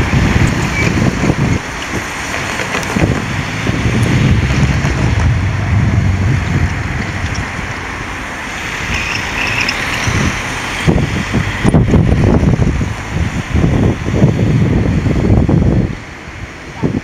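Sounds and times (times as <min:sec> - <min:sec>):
wind buffeting microphone: 0:00.0 - 0:09.1, 0:10.0 - 0:17.0
road traffic rumble: 0:00.0 - 0:17.0
sharp bumps: 0:02.4 - 0:08.2.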